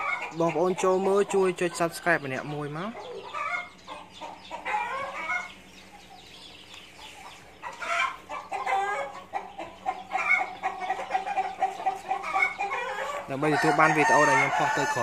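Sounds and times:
chickens clucking and calling: 0:00.0 - 0:15.0.

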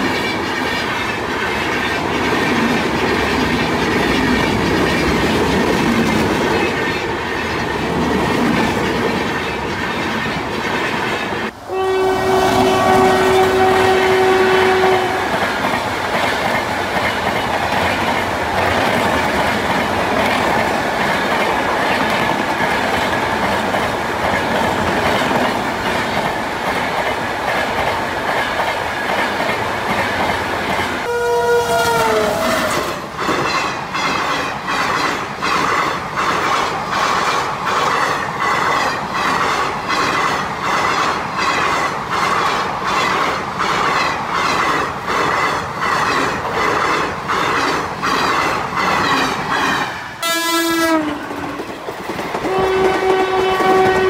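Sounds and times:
train coaches rumbling past: 0:00.0 - 0:54.0
train horn: 0:11.5 - 0:15.4, 0:31.0 - 0:33.1, 0:50.2 - 0:51.6, 0:52.4 - 0:54.0.

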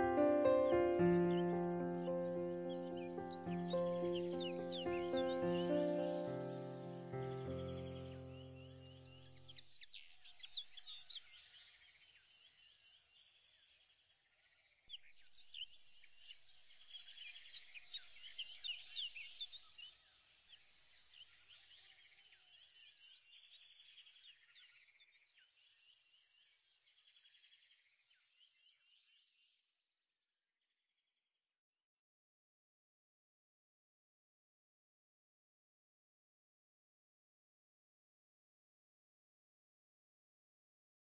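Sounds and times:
birds chirping: 0:00.0 - 0:11.2.

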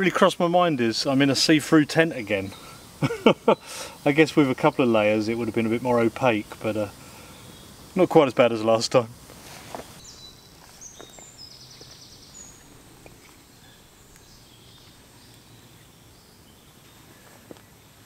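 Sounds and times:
campfire crackling: 0:00.0 - 0:18.0
faint high bird calls: 0:09.7 - 0:18.0.

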